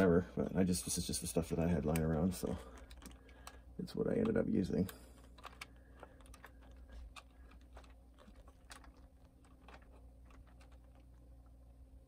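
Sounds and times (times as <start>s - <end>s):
light clicks and taps of wires: 1.6s - 11.1s.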